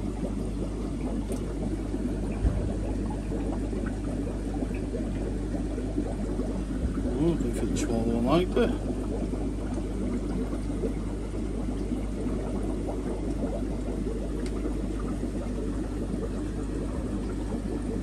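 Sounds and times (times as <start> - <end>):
aquarium water bubbling: 0.0 - 18.0
low steady hum: 0.0 - 18.0.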